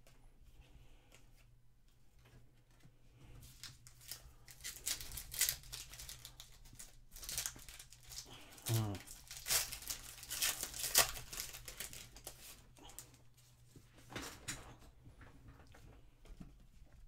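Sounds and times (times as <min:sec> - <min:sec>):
cards shuffled by hand: 0:03.4 - 0:13.2
foil wrapper tearing and crinkling: 0:03.5 - 0:13.1.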